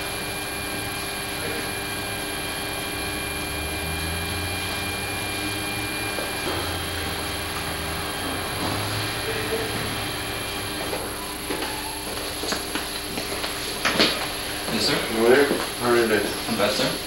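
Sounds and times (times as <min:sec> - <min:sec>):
low hum: 0:01.4 - 0:12.0.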